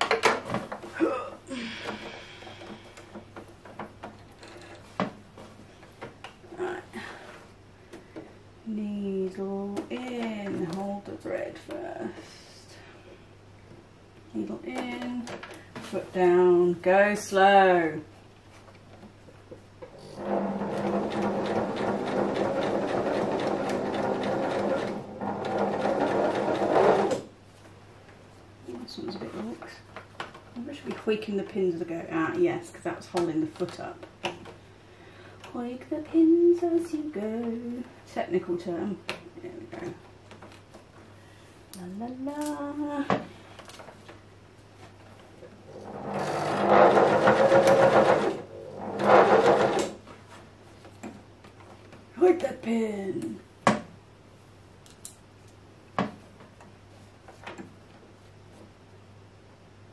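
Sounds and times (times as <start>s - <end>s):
sewing machine stitching: 20.0s - 27.3s, 45.8s - 50.0s.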